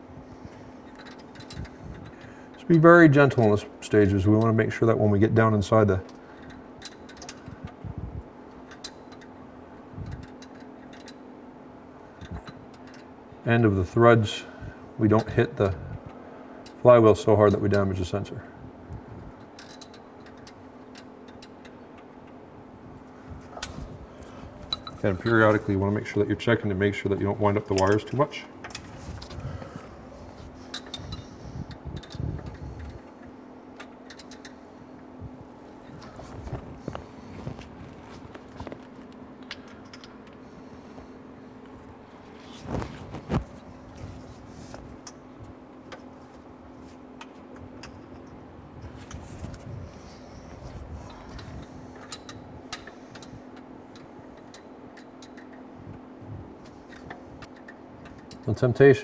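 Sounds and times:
faint steady hum: 0.0 - 59.0
light metallic clicks and clinks: 0.8 - 4.6, 10.0 - 11.2, 12.2 - 13.1, 19.4 - 22.1, 23.6 - 25.7, 51.1 - 55.6.

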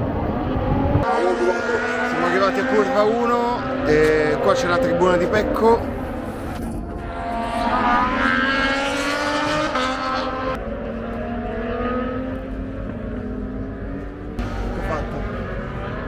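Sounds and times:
racing motorcycle engines: 0.0 - 16.0.

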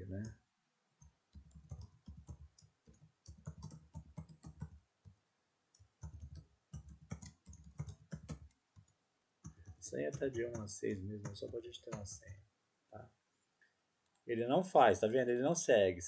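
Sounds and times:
computer keyboard typing: 1.0 - 5.2, 5.8 - 12.4.

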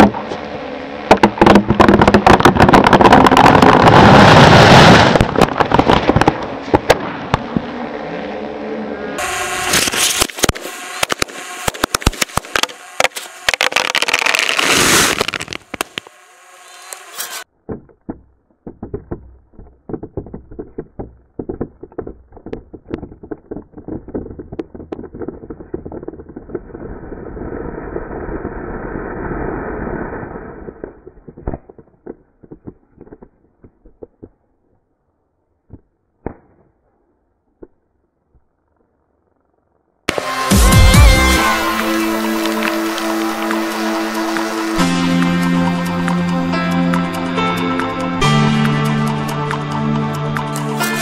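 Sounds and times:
firecrackers crackling and banging: 1.1 - 7.6, 9.6 - 16.2, 40.1 - 45.4
rushing burning flame: 2.8 - 7.5, 13.3 - 16.0.

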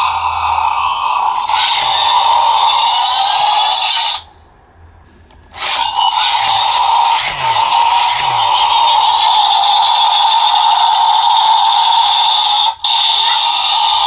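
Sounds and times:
harsh buzzing toy sound effect: 1.4 - 2.9, 5.6 - 10.2.

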